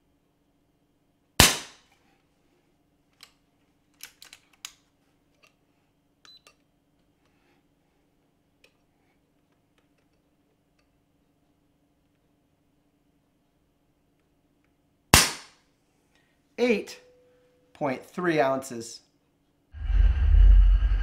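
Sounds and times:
air rifle shot: 0:01.4 - 0:01.8, 0:15.2 - 0:15.5.

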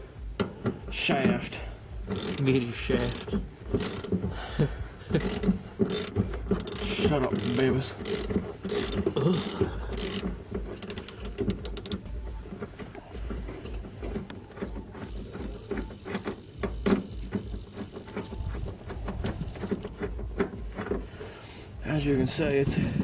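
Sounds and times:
ratchet wrench clicks: 0:02.1 - 0:04.2, 0:05.2 - 0:12.0
bolt and hardware knocking: 0:02.1 - 0:04.3, 0:05.2 - 0:12.0.

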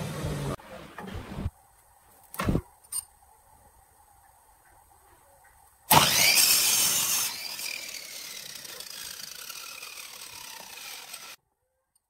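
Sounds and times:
miter saw cutting wood: 0:05.9 - 0:11.4.

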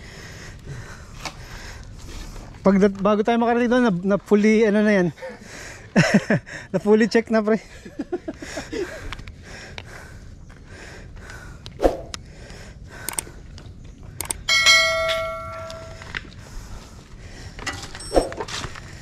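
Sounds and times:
bright bell ring: 0:14.5 - 0:16.0.

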